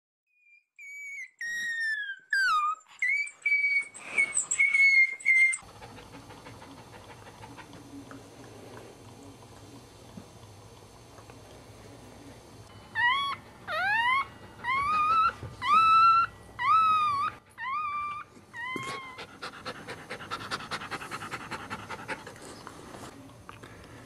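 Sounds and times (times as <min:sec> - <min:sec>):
dog whining: 0:00.4 - 0:05.7, 0:12.9 - 0:19.8.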